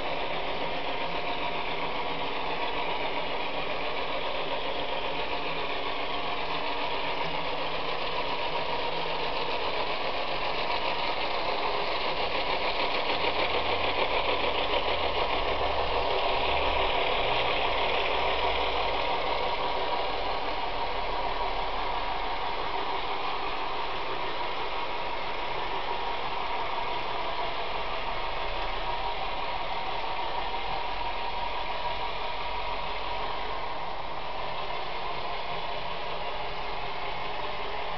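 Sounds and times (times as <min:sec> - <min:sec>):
diesel engine sound from speakers: 0:00.0 - 0:37.9
model train rolling on track: 0:00.0 - 0:37.9.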